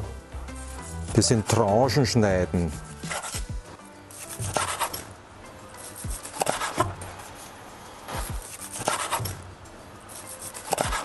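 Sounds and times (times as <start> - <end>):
knife sawing through steak: 2.8 - 3.5, 4.1 - 5.1, 5.8 - 9.4, 10.1 - 11.0.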